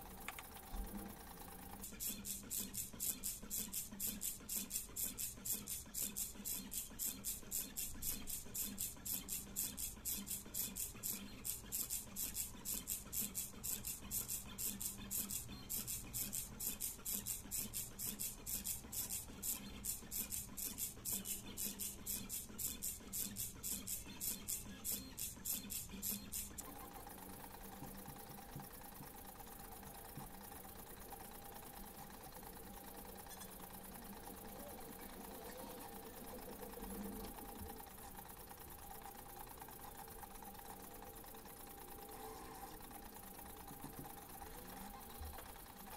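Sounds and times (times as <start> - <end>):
plotter motors pulsing: 0.0 - 45.9.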